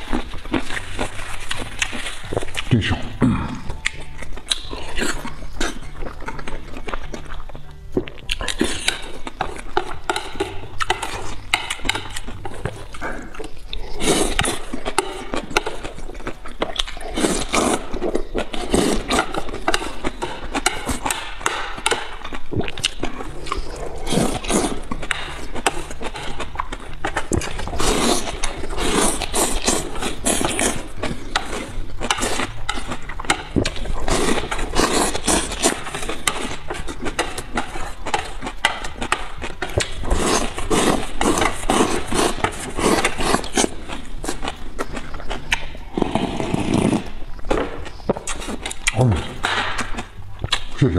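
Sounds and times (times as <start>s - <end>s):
loud slurping of noodles: 46.0s - 47.1s.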